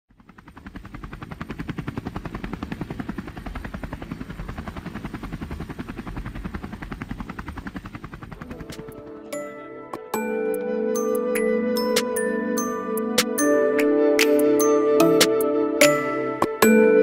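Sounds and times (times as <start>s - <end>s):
low engine rumble: 0.1s - 9.3s
helicopter rotor chopping: 0.1s - 10.4s.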